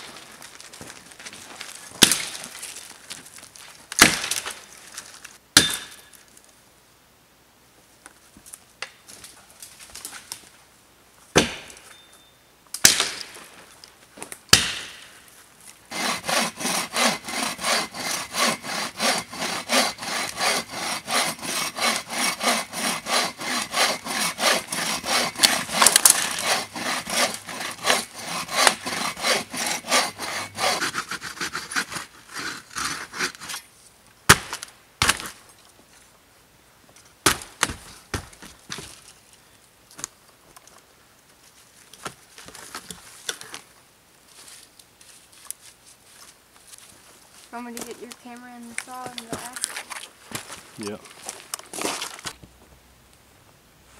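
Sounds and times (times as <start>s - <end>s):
bow saw cutting log: 15.9s - 33.6s.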